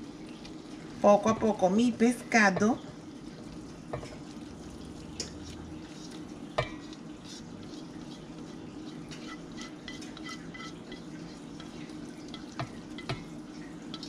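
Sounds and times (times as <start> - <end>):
spatula scraping into metal bowl: 5.2 - 11.7.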